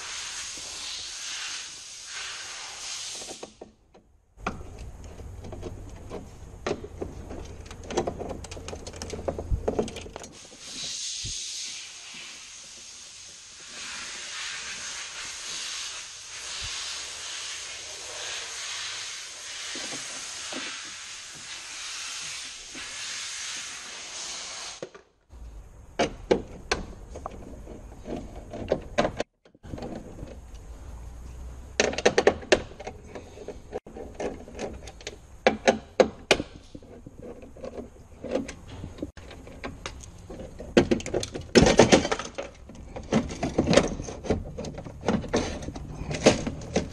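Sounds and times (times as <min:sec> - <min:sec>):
steady hiss: 0:00.0 - 0:03.6, 0:10.4 - 0:25.8.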